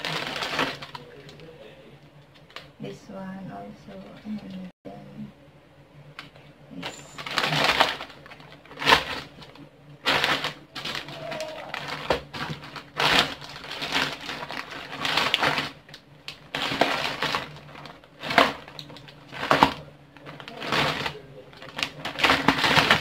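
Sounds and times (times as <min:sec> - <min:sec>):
plastic bags crinkling: 0:00.0 - 0:01.6, 0:06.2 - 0:23.0.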